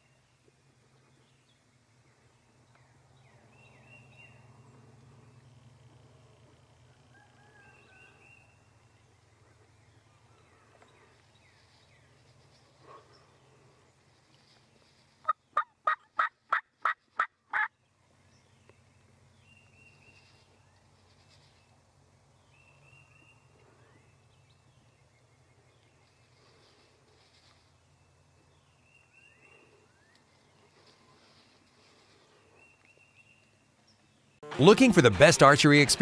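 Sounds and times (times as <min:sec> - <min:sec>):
turkey gobbling: 0:15.2 - 0:17.7.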